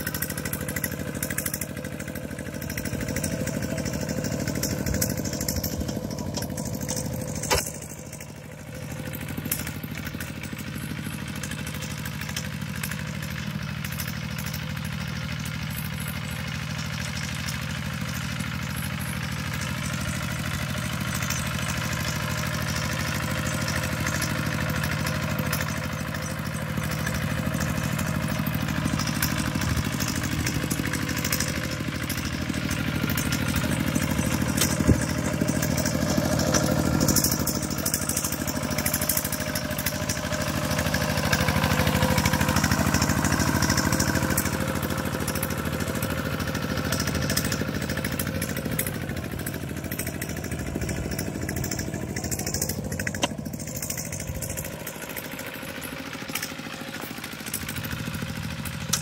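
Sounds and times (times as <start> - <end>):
diesel tractor engine running: 0.0 - 59.0.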